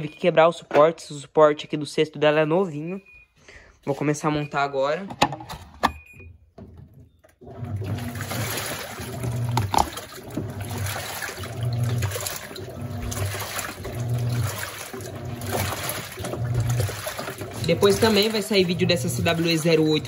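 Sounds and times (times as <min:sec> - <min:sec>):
washing machine motor hum: 0:06.0 - 0:20.0
water sloshing and churning: 0:07.4 - 0:20.0.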